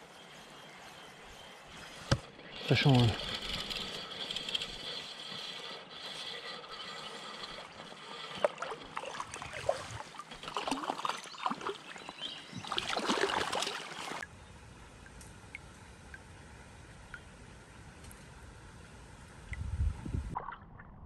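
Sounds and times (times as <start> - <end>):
creek water running: 1.9 - 14.3
fish splashing at surface: 12.7 - 14.2.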